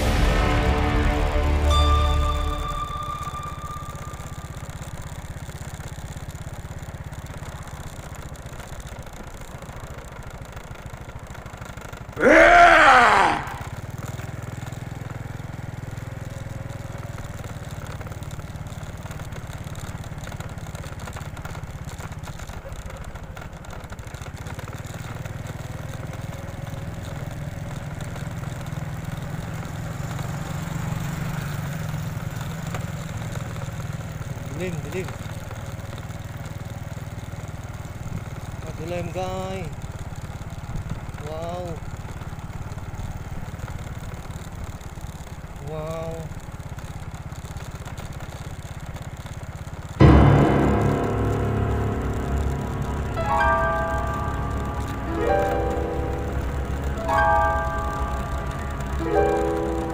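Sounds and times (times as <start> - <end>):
vehicle engine droning: 0.0 - 59.9
loud rising and falling cry: 12.2 - 13.9.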